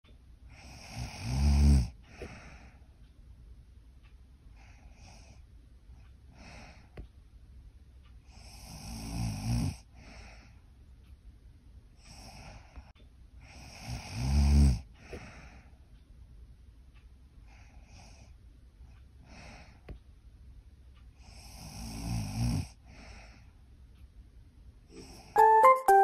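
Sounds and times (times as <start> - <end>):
soft breathing: 0.4 - 3.2, 4.5 - 7.2, 9.7 - 10.8, 11.9 - 16.1, 17.4 - 20.1, 21.0 - 23.8
woman snoring: 0.6 - 2.0, 8.4 - 9.8, 13.5 - 14.8, 21.3 - 22.8.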